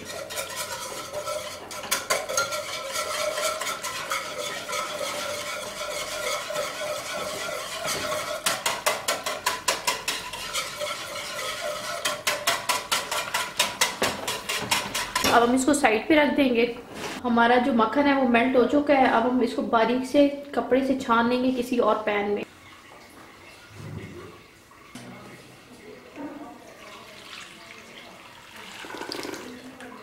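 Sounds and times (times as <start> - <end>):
whisk clicking against saucepan: 0.0 - 15.3.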